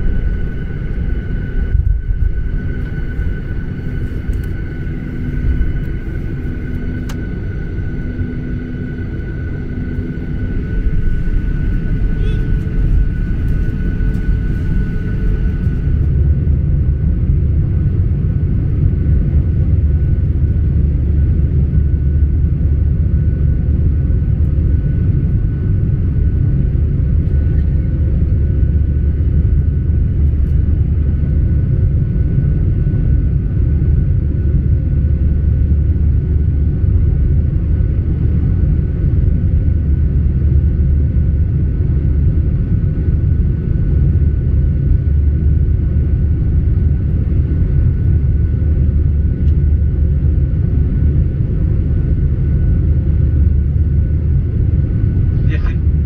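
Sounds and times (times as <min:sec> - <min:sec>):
rushing air in cabin: 0:00.0 - 0:21.3
faint steady whine: 0:00.0 - 0:56.0
jet engines droning: 0:00.0 - 0:56.0.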